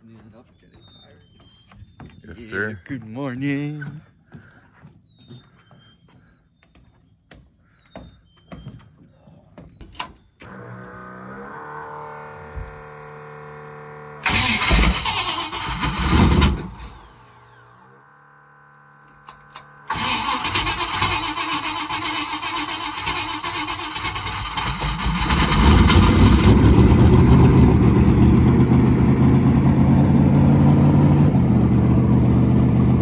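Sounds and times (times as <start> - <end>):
boat engine cranking and firing: 14.2 - 17.6, 19.1 - 27.4.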